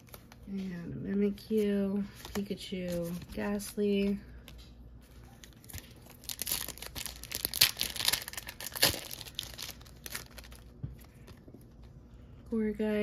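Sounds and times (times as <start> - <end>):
foil wrapper tearing and crinkling: 5.3 - 11.4.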